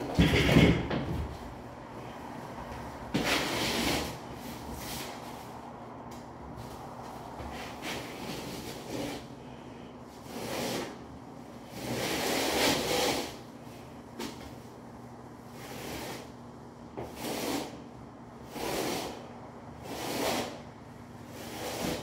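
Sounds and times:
trowel scraping mortar on concrete: 3.2 - 4.2, 10.2 - 11.0, 11.7 - 13.4, 17.0 - 17.8, 18.5 - 19.2, 19.8 - 20.6, 21.3 - 22.0.

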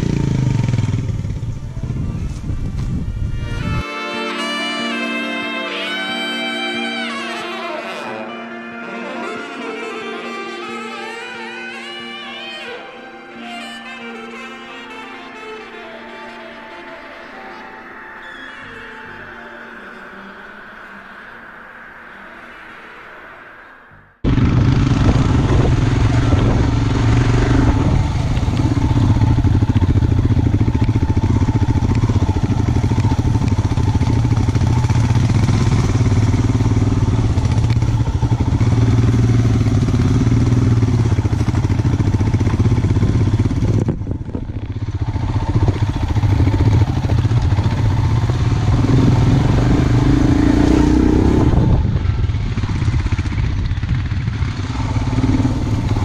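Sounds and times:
motorcycle engine running: 0.0 - 3.8, 24.2 - 56.0
wind and road noise: 0.0 - 3.9, 20.4 - 56.0.

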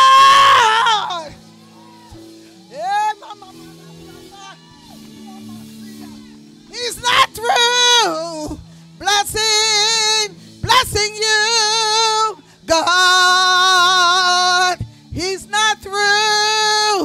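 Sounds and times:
woman singing with vibrato: 0.0 - 1.4, 2.6 - 3.4, 6.7 - 17.0.

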